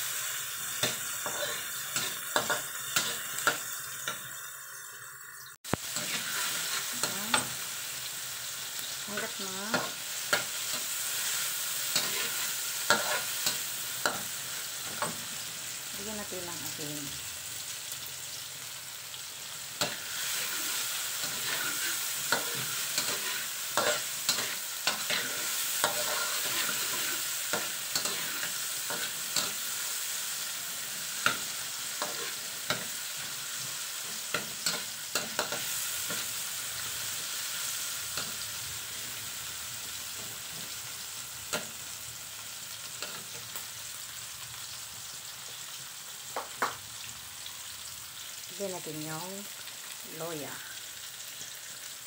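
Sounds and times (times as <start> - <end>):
garlic and onion sizzling in oil: 0.0 - 52.0
spatula scraping a pan: 0.8 - 4.2, 5.9 - 7.6, 9.7 - 14.4, 19.8 - 29.7, 31.1 - 36.4.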